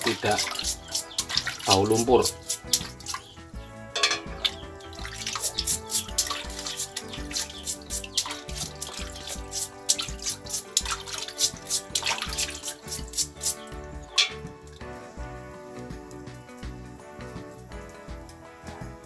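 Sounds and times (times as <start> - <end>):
brush scrubbing shells: 0.0 - 3.4, 4.0 - 14.4
background music: 0.0 - 19.0
water splashing and dripping: 0.0 - 19.0.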